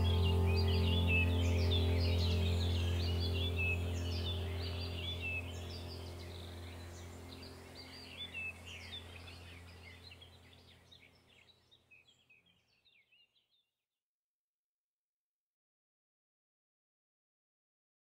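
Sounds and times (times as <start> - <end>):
low steady drone: 0.0 - 11.0
birds chirping: 0.0 - 13.4.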